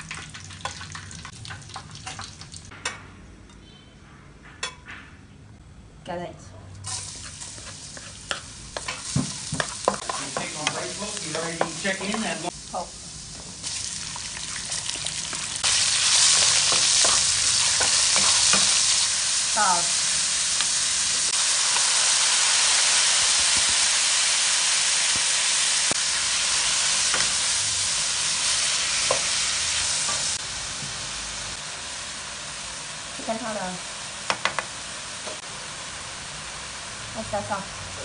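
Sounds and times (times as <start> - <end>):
food sizzling in hot oil: 0.0 - 2.7, 6.8 - 38.0.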